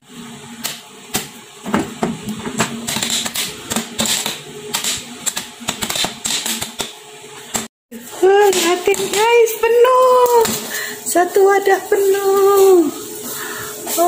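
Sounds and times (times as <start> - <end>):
popcorn popping: 0.6 - 10.7.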